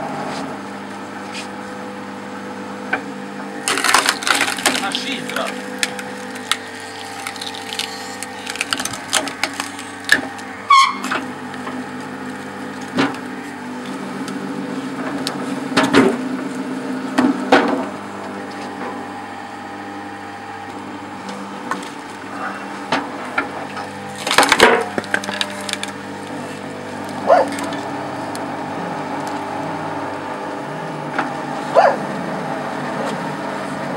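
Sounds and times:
log splitter motor hum: 0.0 - 33.9
logs cracking and knocking: 3.6 - 13.2, 23.8 - 27.8.

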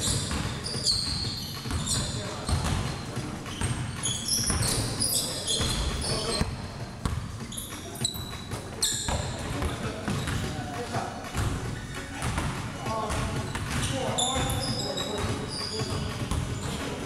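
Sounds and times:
basketball bouncing on hardwood floor: 0.0 - 3.0, 5.6 - 10.5, 12.2 - 16.8
sneakers squeaking on court: 0.0 - 17.0.

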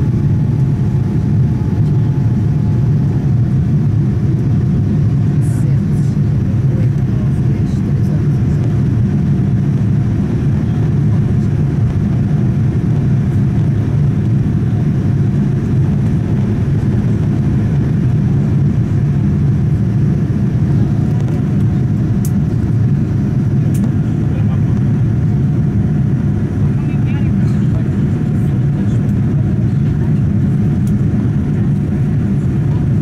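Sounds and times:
airflow: 0.0 - 30.8
jet engines low rumble: 0.0 - 33.0.

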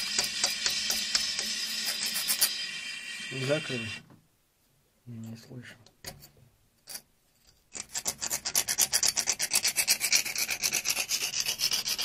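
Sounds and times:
hand tool scraping metal pipe: 0.0 - 2.6, 6.1 - 12.0.

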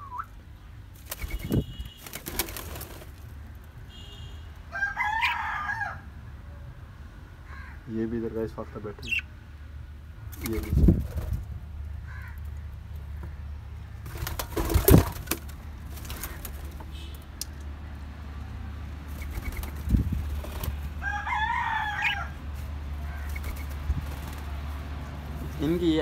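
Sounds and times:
wing flutters: 1.0 - 3.4, 10.3 - 11.5, 14.0 - 17.1, 19.1 - 21.0, 22.1 - 24.8.

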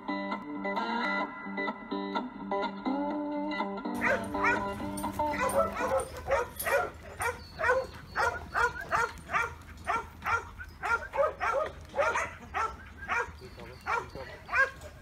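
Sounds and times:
dog barking: 4.0 - 15.0.

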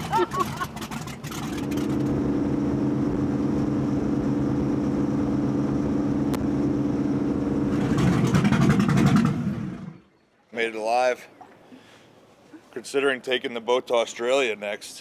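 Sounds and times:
motorboat engine droning: 0.0 - 10.2.

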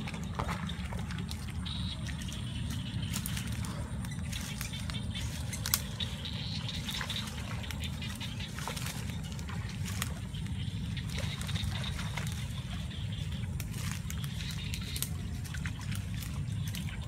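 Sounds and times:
footsteps wading through water: 0.0 - 17.0
steady low rumble: 0.0 - 17.0.

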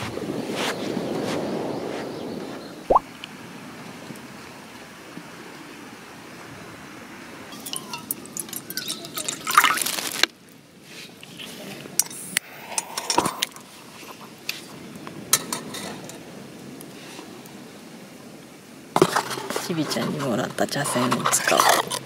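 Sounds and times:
water pouring into cup: 8.8 - 10.1.

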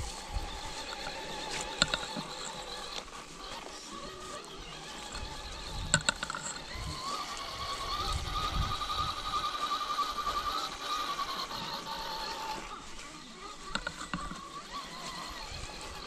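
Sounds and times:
electric motor whining: 0.0 - 16.0.

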